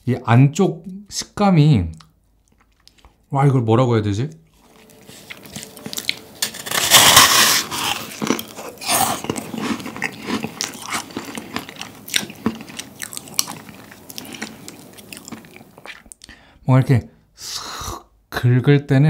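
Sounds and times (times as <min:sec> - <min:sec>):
chewing with crackling crunches: 0:01.9 - 0:03.3, 0:04.3 - 0:16.4
crunchy cookie bite: 0:04.6 - 0:16.3.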